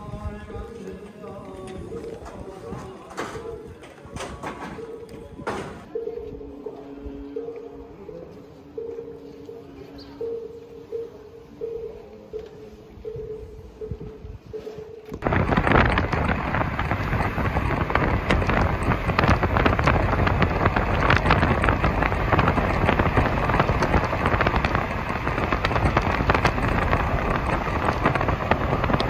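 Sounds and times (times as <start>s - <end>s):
constant crackling: 15.1s - 29.0s
car road noise: 15.2s - 29.0s
wind buffeting microphone: 15.2s - 29.0s.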